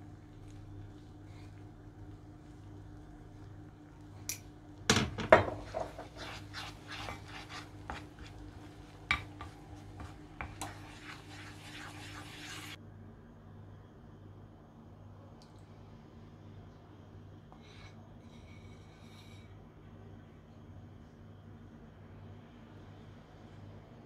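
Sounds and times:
butter sizzling: 0.0 - 12.8
wooden spoon scraping metal pan: 5.3 - 12.8.

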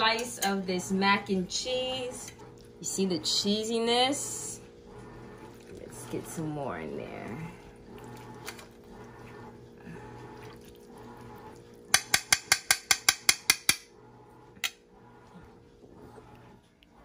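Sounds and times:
metal spoon tapping a plate: 11.9 - 13.8.

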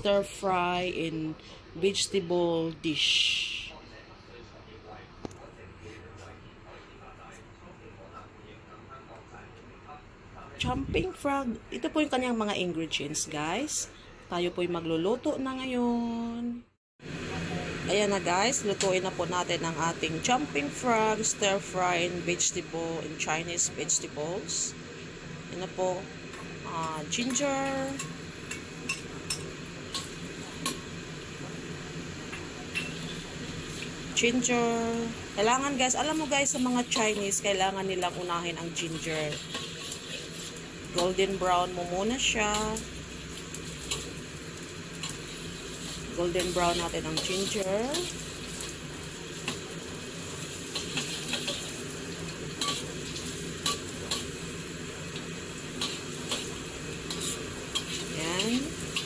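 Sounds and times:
ginger sizzling in oil: 17.0 - 59.0
utensil scraping pan: 39.0 - 41.1, 55.8 - 59.0
utensils tapping cookware: 50.7 - 51.8, 52.6 - 54.3, 55.8 - 59.0.

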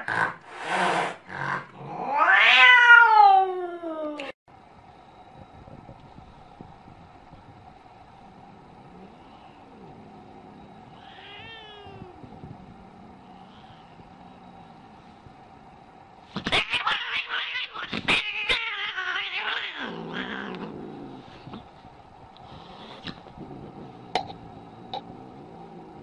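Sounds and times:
cat growling: 1.3 - 3.6, 8.3 - 15.0, 16.4 - 21.7, 22.5 - 26.0
cat hissing and spitting: 22.4 - 23.8.

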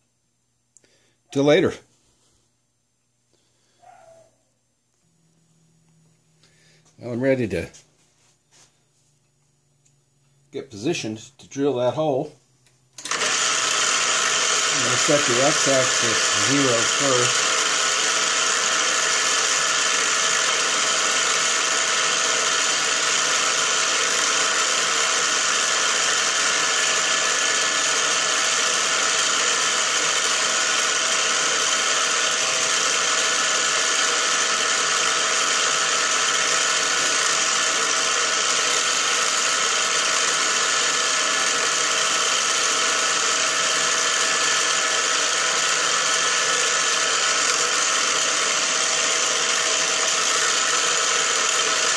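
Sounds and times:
milling machine humming: 13.0 - 51.9.

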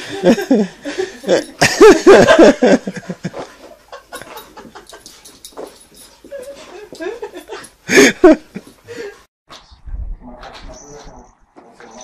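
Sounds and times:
person laughing: 0.0 - 5.0, 6.3 - 9.1.

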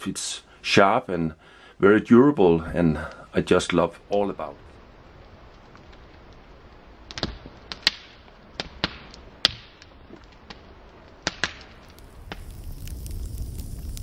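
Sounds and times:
campfire crackling: 0.1 - 14.0
fire popping: 2.6 - 14.0.

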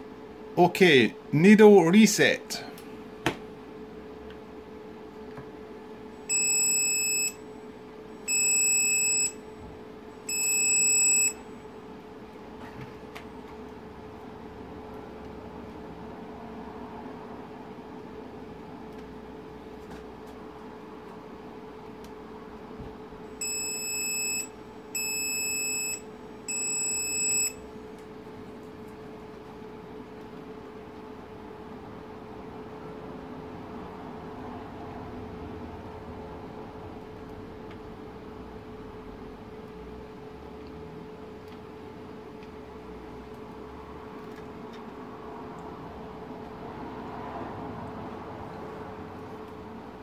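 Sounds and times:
steady low hum: 0.0 - 34.8
electronic warning beeps: 6.3 - 7.4, 8.2 - 9.5, 10.3 - 11.5, 23.4 - 27.6.

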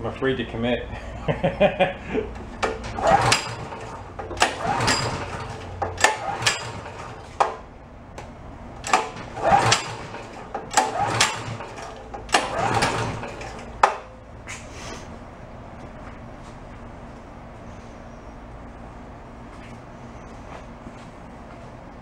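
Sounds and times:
engine pull starter cranking: 2.3 - 7.7, 8.8 - 14.2
starter rope rewinding: 2.6 - 7.2.

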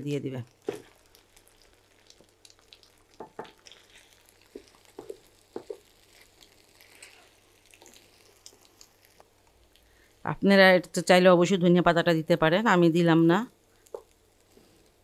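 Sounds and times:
oil sizzling: 0.0 - 11.8, 12.5 - 15.0
spatula stirring food in a pan: 0.5 - 10.2.

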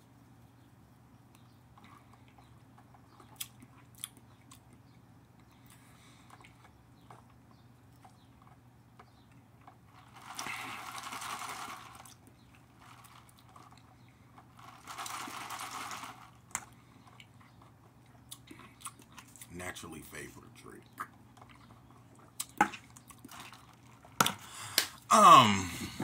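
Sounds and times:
drinking through a straw: 10.2 - 12.2.

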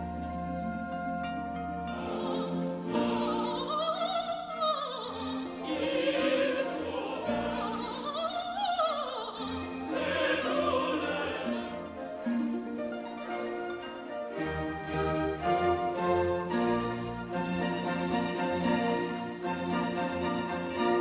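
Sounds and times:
classical instrumental accompaniment: 0.0 - 21.0
operatic singing: 1.8 - 12.2, 17.9 - 21.0.

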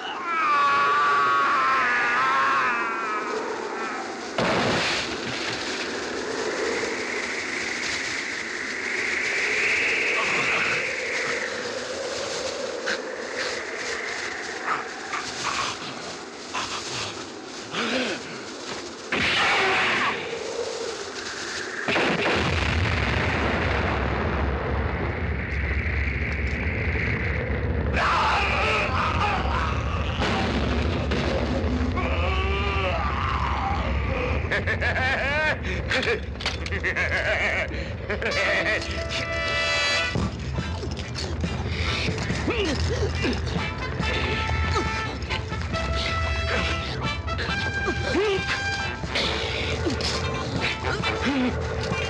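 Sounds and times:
fire rumbling and hissing: 0.0 - 52.0
sustained noisy wash: 2.6 - 30.7
explosion blast: 4.4 - 5.8, 21.9 - 28.5, 30.1 - 32.0.

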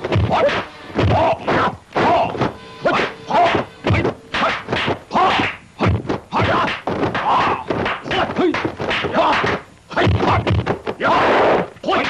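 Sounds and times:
punch and kick whacks: 0.0 - 1.3, 3.4 - 11.5.

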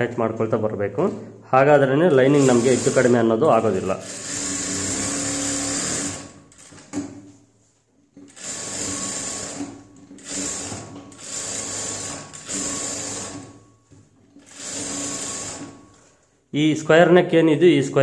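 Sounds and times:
sewing machine stitching: 2.1 - 7.1, 8.2 - 13.6, 14.3 - 16.0.

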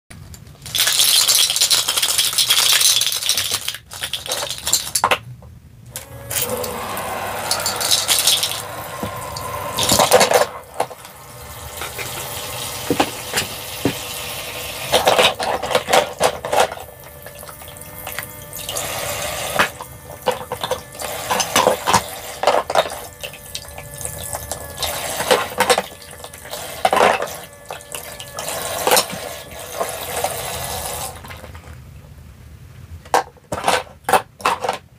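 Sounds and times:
plastic pieces clicking: 0.3 - 5.2.

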